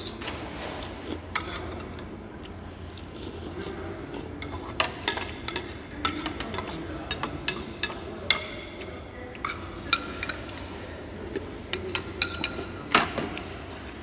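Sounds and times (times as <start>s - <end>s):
metal spoon clinking on bowl: 11.8s - 12.7s.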